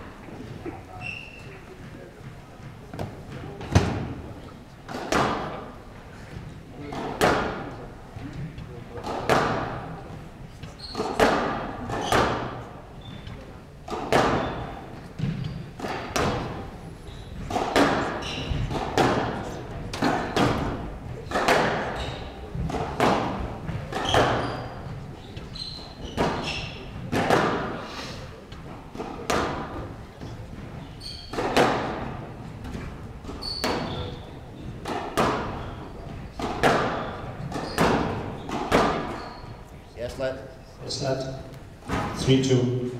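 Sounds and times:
squash ball hits echoing: 2.6 - 10.2, 10.9 - 13.2, 13.9 - 25.0, 25.7 - 27.8, 28.6 - 39.6.

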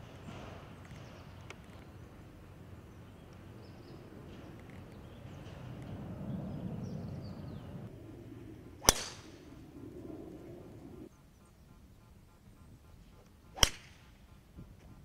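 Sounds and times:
golf club striking ball: 8.8 - 9.4, 13.6 - 14.0.

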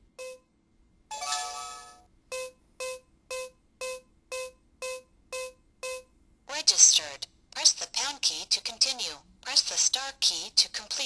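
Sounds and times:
electronic chime: 1.1 - 4.5.

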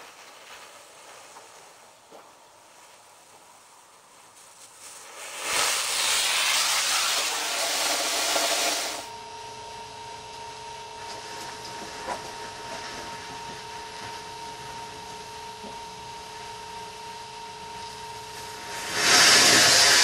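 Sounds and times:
faint steady hum: 0.0 - 20.0
rocket motor hissing: 4.8 - 9.1, 18.4 - 20.0.

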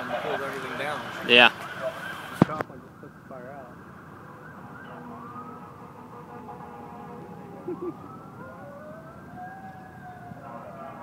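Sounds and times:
fire engine sirens wailing: 0.0 - 11.0.

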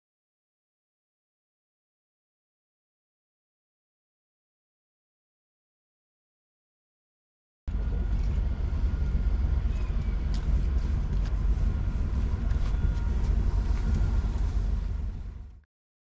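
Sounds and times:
boat low rumble: 7.7 - 15.7.

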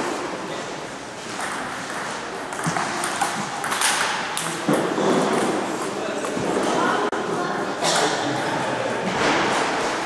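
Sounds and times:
steady background noise: 0.0 - 10.0
table tennis ball hits: 1.4 - 6.3.

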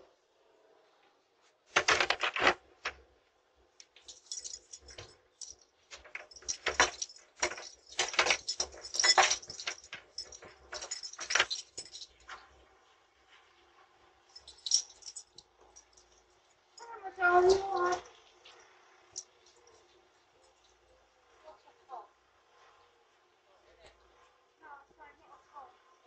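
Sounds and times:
keys jangling: 1.8 - 2.6, 3.9 - 12.4, 14.3 - 16.2, 16.8 - 18.2.

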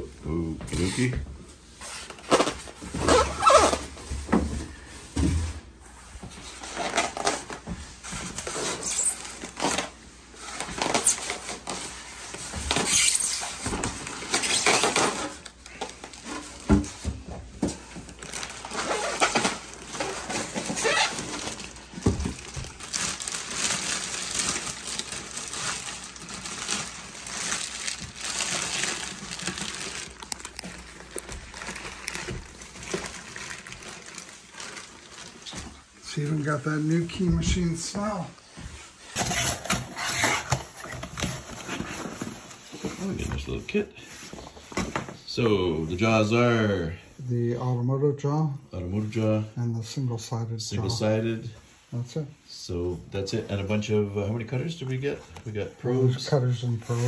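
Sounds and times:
plastic wrapping rustling: 0.7 - 1.1, 1.7 - 5.0, 5.9 - 45.2, 53.2 - 57.0
foam packing pulled apart: 8.4 - 9.9, 12.7 - 16.5, 18.2 - 35.6.

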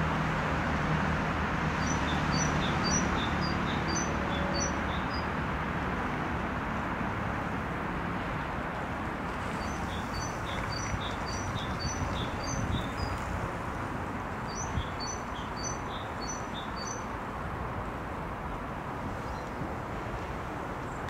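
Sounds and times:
songbird singing high whistled notes: 1.8 - 5.3, 9.6 - 13.2, 14.5 - 17.0.

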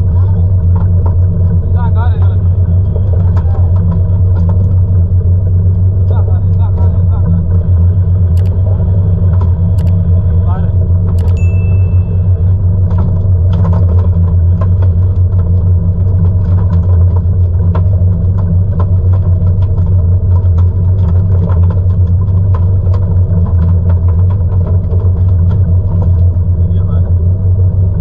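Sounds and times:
boat engine droning: 0.0 - 28.0.

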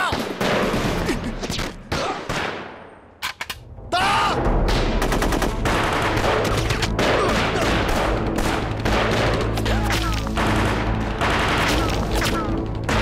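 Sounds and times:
rifle and machine-gun fire: 0.0 - 1.1, 4.7 - 13.0.

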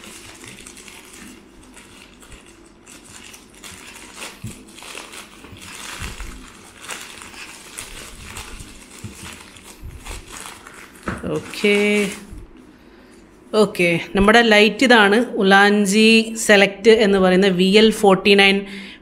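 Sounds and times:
plastic mailer crinkling: 0.0 - 12.4.

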